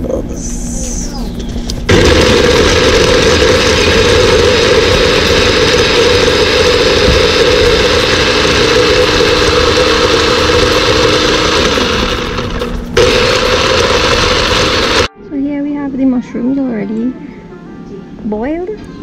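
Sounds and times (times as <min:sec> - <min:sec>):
electric chopper mincing garlic: 0:01.9 - 0:15.1.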